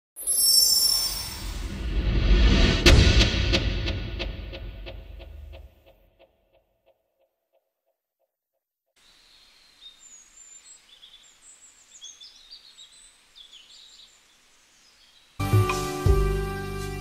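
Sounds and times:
birds chirping and twittering: 9.0 - 15.4
faint outdoor hiss: 9.0 - 16.1.

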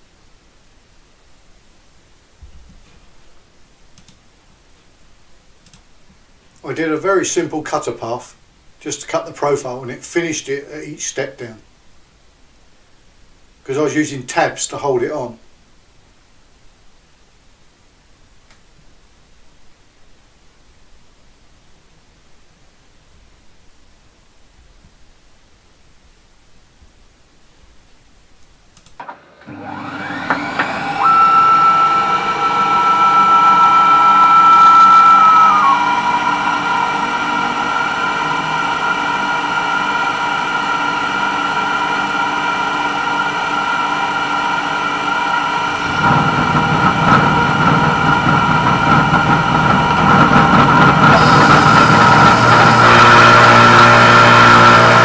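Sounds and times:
milling machine spindle whine: 29.5 - 55.0.

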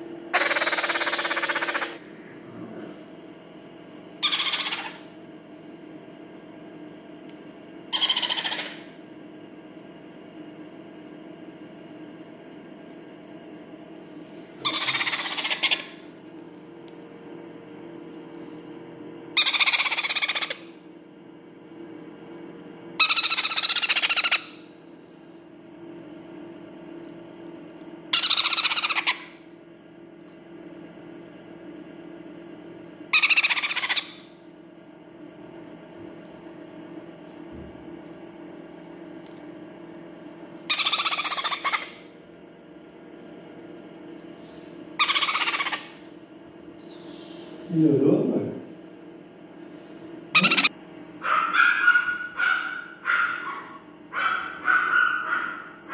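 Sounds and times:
parrot chick begging calls: 0.4 - 2.0, 4.2 - 5.0, 7.9 - 8.8, 14.6 - 16.0, 19.4 - 20.7, 23.0 - 24.6, 28.1 - 29.4, 33.1 - 34.3, 40.7 - 42.0, 45.0 - 46.0, 50.4 - 50.7, 51.4 - 53.7.

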